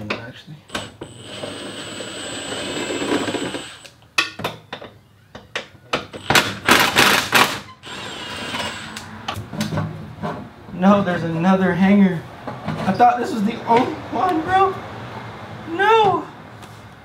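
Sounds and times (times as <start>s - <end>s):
power tool running: 0.7s - 3.9s.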